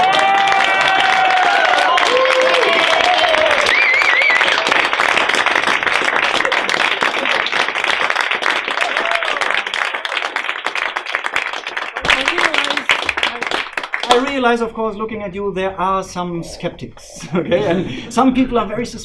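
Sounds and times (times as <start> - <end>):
small audience applauding: 0.0 - 14.6.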